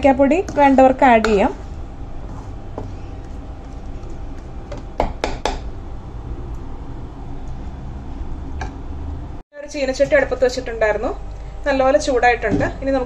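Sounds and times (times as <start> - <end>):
spoon stirring thick batter: 0.2 - 5.0
low hum: 5.6 - 13.0.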